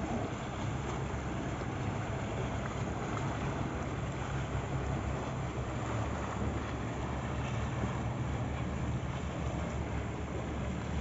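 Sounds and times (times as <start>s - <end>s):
boat engine droning: 0.0s - 11.0s
water rushing: 0.0s - 11.0s
wind: 0.0s - 11.0s.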